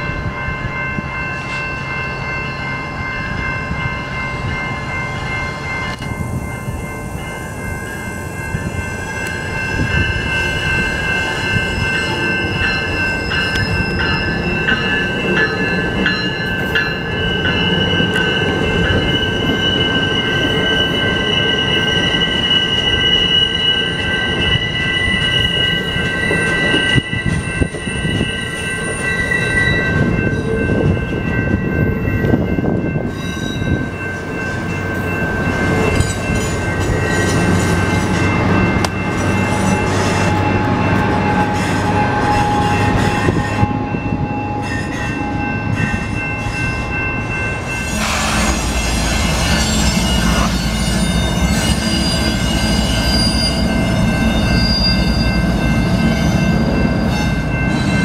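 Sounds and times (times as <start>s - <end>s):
train wheels rumbling: 0.0s - 58.0s
high squealing tones: 47.8s - 55.6s.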